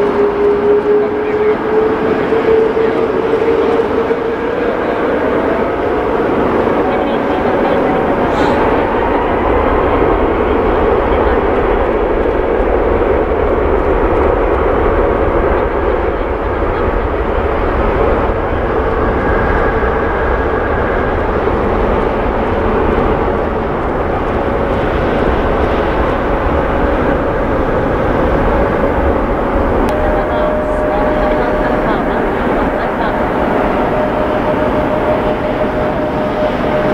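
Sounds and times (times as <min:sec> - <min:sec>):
faint jet whine: 0:00.0 - 0:36.9
jet engines rushing: 0:00.0 - 0:36.9.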